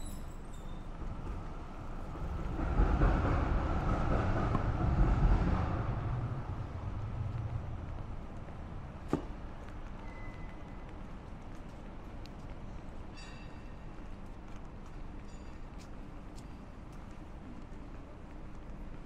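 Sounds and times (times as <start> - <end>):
vehicle rumbling past: 2.0 - 9.0.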